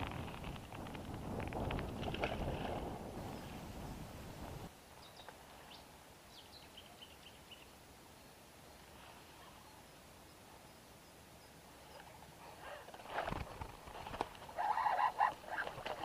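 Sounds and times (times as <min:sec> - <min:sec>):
wind on microphone: 0:00.0 - 0:04.7.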